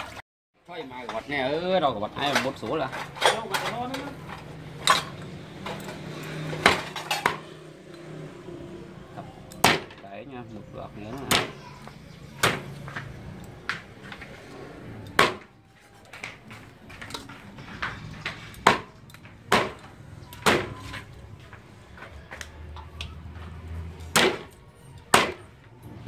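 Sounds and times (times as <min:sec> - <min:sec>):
cleaver chopping meat on wood: 0:09.6 - 0:10.0, 0:11.2 - 0:11.6, 0:12.4 - 0:13.2, 0:15.2 - 0:15.5, 0:18.6 - 0:20.8, 0:24.1 - 0:25.5.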